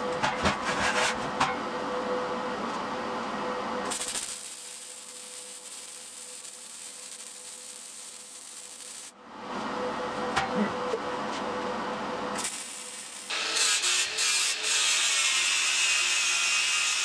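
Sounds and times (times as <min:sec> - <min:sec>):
welding arc hissing: 0:03.9 - 0:09.2, 0:12.4 - 0:14.8.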